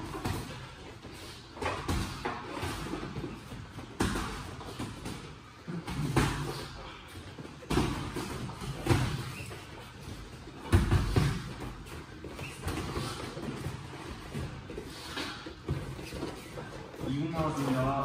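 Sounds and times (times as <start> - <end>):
boxing gloves thudding: 7.6 - 11.8.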